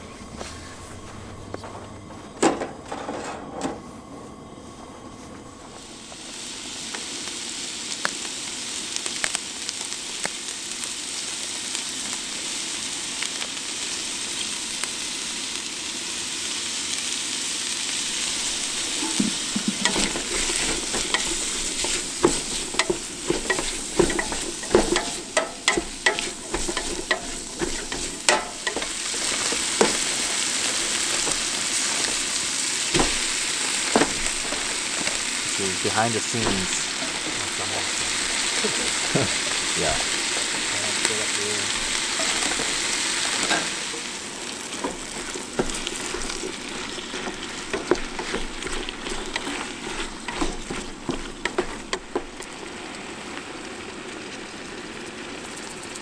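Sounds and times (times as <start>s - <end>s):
vegetables sizzling in pot: 5.6s - 56.0s
pot knocking on stove: 18.7s - 30.2s
spatula scraping metal pot: 18.9s - 30.4s.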